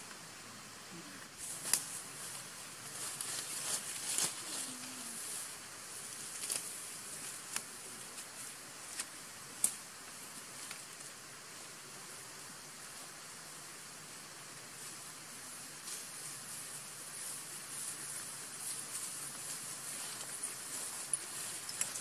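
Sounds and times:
leaves and stems rustling: 0:01.2 - 0:22.0.

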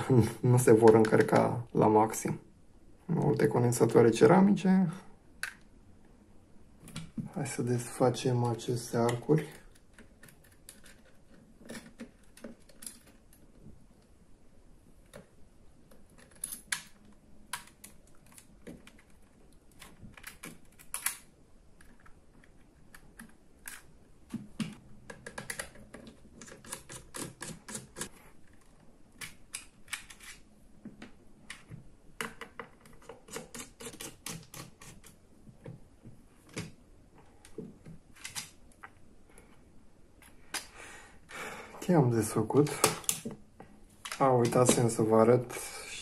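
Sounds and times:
small metal and plastic clicks: 0:15.9 - 0:23.9.

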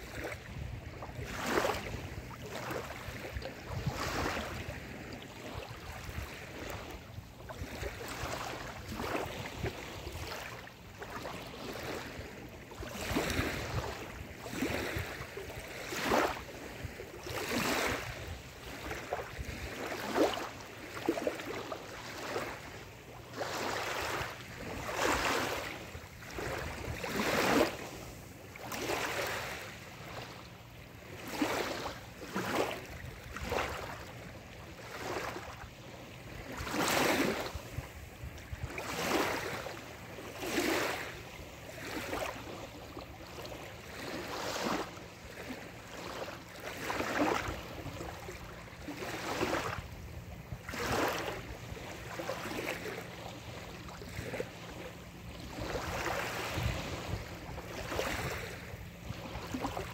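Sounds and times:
small waves lapping on sand: 0:00.0 - 0:59.9
low steady rumble: 0:53.2 - 0:59.8.

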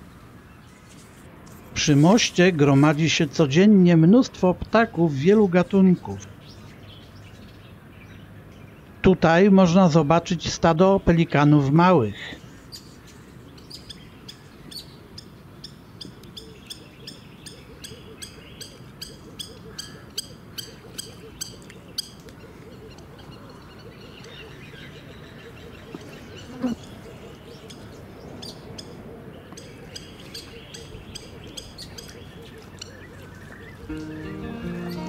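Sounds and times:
ambient background: 0:33.9 - 0:35.0
bird chip notes: 0:33.9 - 0:35.0
louder lower sound: 0:33.9 - 0:35.0.

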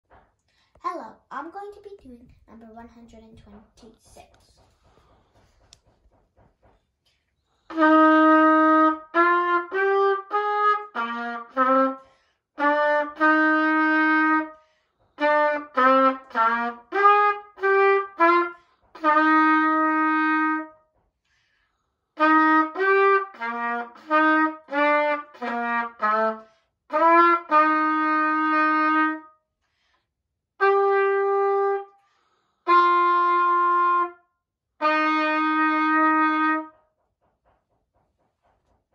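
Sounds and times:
trumpet playing: 0:07.7 - 0:12.0, 0:12.6 - 0:14.6, 0:15.2 - 0:20.8, 0:22.2 - 0:29.3, 0:30.6 - 0:32.0, 0:32.6 - 0:36.8.

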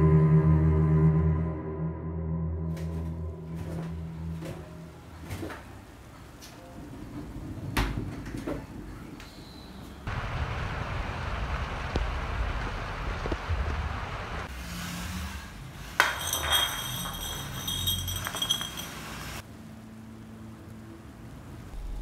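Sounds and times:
glass bottle clinking on floor: 0:16.0 - 0:19.4.

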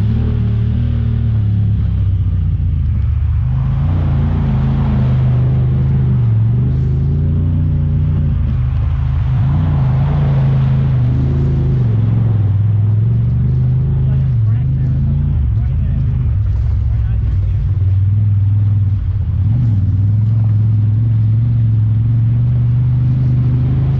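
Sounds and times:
engine running: 0:00.0 - 0:23.9
rushing noise: 0:03.1 - 0:17.8.

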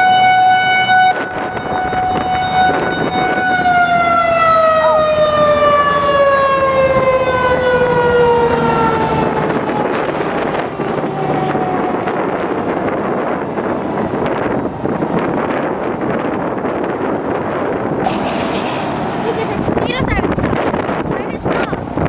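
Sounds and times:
warning siren winding down: 0:00.0 - 0:16.5.

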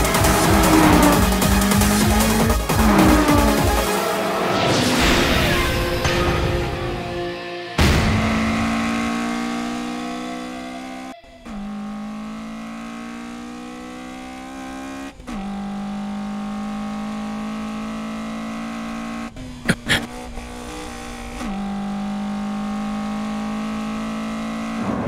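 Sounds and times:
car engine at high revs: 0:00.0 - 0:04.5, 0:07.8 - 0:25.0.

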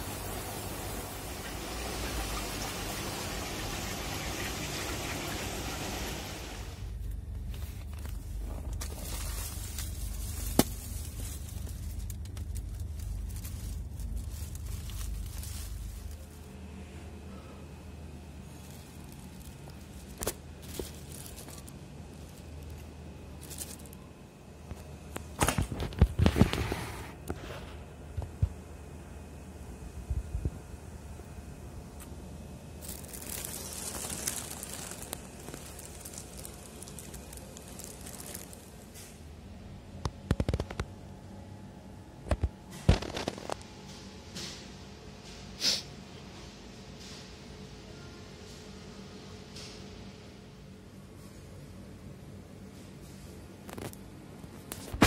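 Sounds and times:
steady low hum: 0:00.0 - 0:55.0
plastic bag rustling: 0:06.8 - 0:16.9, 0:18.2 - 0:27.6, 0:32.8 - 0:39.3, 0:42.8 - 0:43.6.

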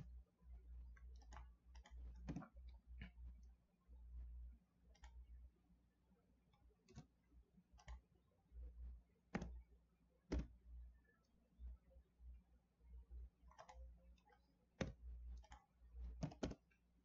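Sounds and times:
low steady hum: 0:00.0 - 0:17.0
mouse and keyboard clicks: 0:04.9 - 0:05.2, 0:07.8 - 0:08.0, 0:09.3 - 0:09.6, 0:13.5 - 0:16.7.

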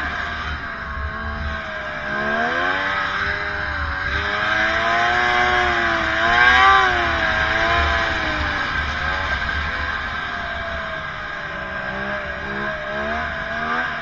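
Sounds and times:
snowmobile engine under throttle: 0:00.0 - 0:14.0.

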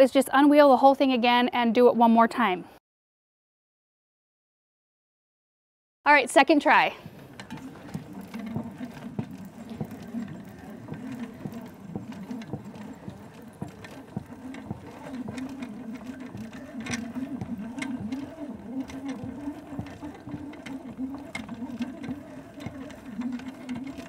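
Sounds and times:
hose reel cranking with clicks: 0:06.7 - 0:24.0.

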